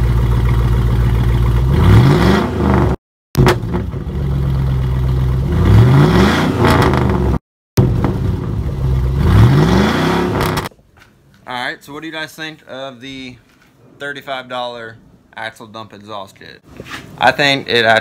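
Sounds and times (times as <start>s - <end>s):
truck engine idling and revving: 0.0s - 10.7s.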